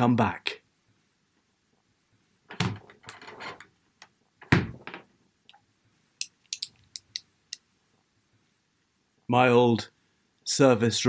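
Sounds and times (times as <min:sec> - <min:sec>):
small metallic clicks: 0:06.2 - 0:07.6.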